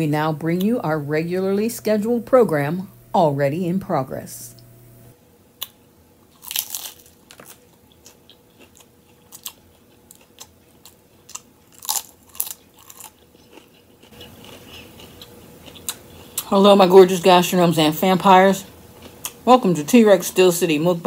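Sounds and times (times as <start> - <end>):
crunchy chips being chewed: 6.3 - 16.5, 18.9 - 19.4.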